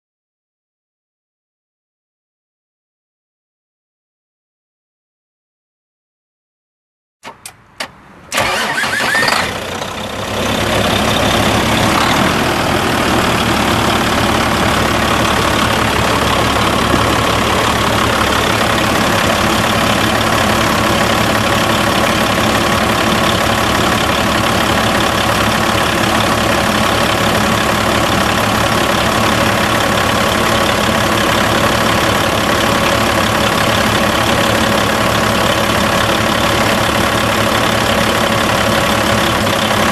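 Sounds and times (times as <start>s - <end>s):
diesel truck engine idling: 8.3s - 39.9s.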